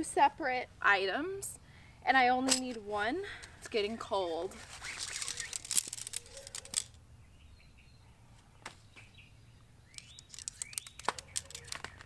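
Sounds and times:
small birds chirping: 3.7s - 12.0s
rustling of stuff sack: 3.9s - 6.8s
tent poles clicking: 4.5s - 7.0s, 9.9s - 12.0s.

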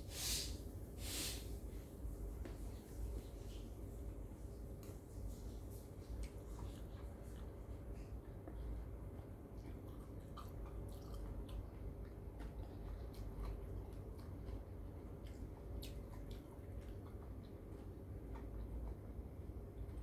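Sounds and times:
low steady hum: 0.0s - 20.0s
wet chewing: 5.2s - 20.0s.

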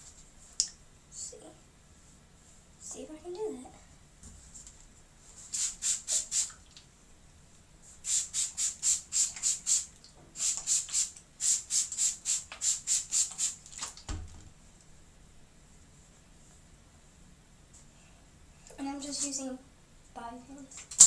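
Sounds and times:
spray bottle hissing sprays: 5.4s - 6.6s, 8.0s - 13.7s.

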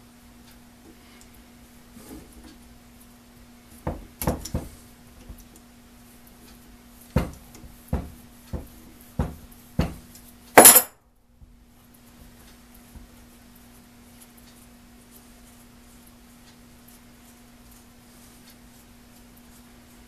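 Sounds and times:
metal clatter: 10.6s - 10.9s.

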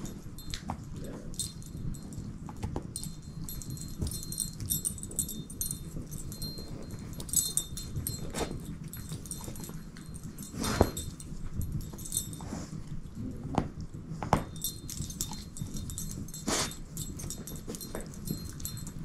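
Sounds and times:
dog chewing rope toy: 0.0s - 19.0s.

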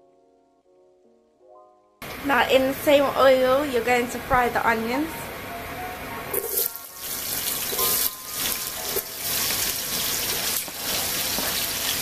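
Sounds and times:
onions sizzling in oil: 6.4s - 12.0s.

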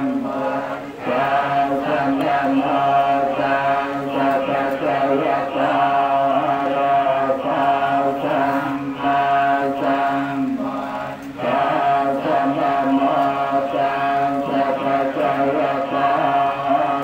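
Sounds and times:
monks chanting in unison: 0.0s - 17.0s.

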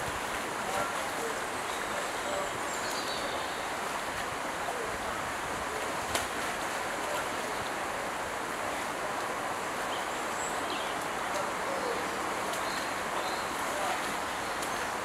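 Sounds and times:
water splashing in pool: 3.5s - 15.0s.

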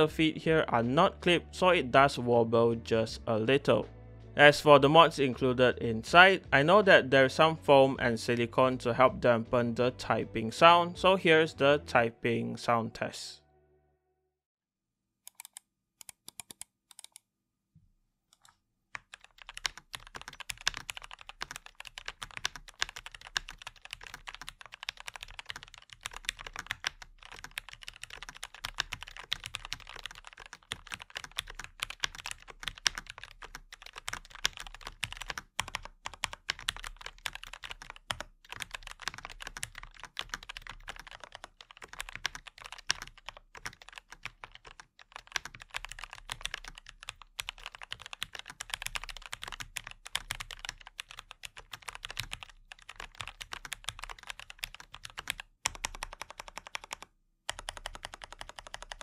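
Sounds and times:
fast typing on mechanical keyboard: 18.4s - 59.0s.

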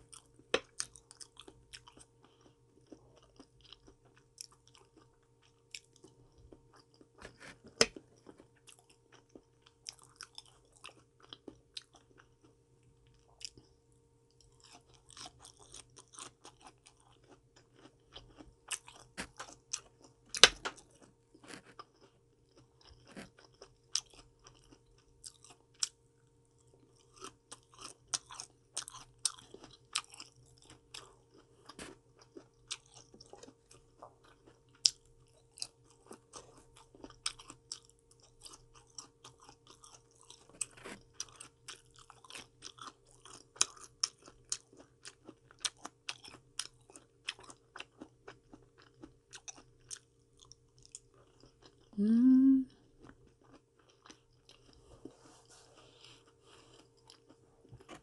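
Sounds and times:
chewing crisp vegetables: 0.0s - 58.0s.

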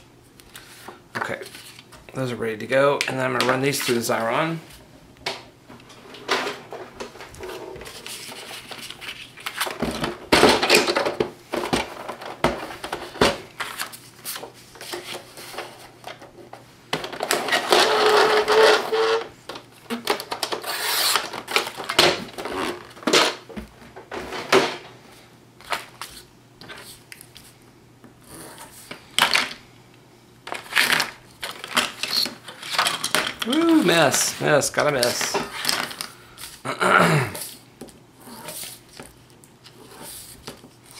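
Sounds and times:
paper rustling: 7.4s - 9.7s.

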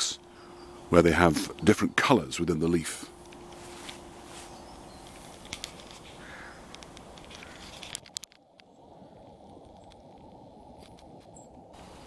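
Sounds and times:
faint outdoor hiss: 0.0s - 12.0s
light rustling: 3.2s - 8.7s.

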